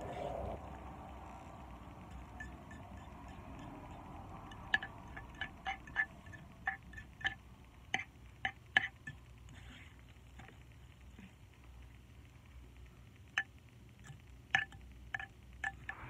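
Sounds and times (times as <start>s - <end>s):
utensil clinking against bowl: 2.1s - 9.2s, 13.4s - 16.0s.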